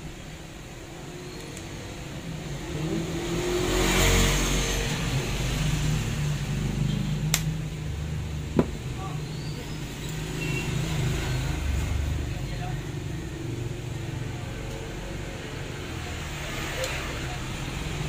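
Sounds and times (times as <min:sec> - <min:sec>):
vehicle passing: 0:02.5 - 0:06.9.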